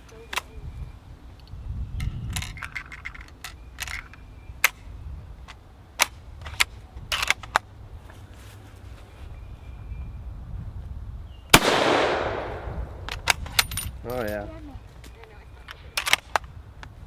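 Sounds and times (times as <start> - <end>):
sharp metal clicks of rifle bolt: 5.5 - 7.6, 15.7 - 16.5.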